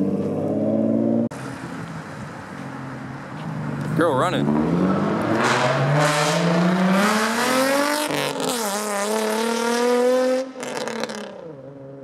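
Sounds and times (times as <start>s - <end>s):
car engine accelerating past: 4.3s - 12.0s.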